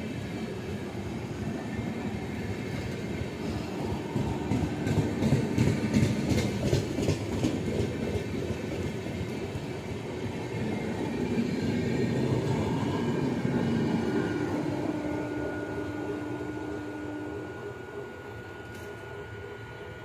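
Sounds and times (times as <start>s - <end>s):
passenger train passing at speed: 0.0s - 20.0s
steady hum: 12.3s - 20.0s.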